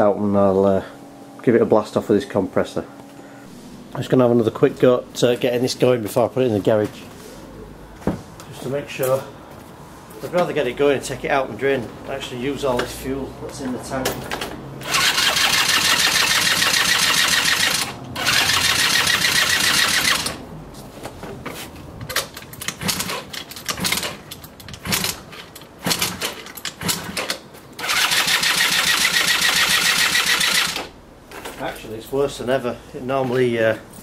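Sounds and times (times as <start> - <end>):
scooter starter cranking engine: 14.4 - 20.4, 22.1 - 31.0.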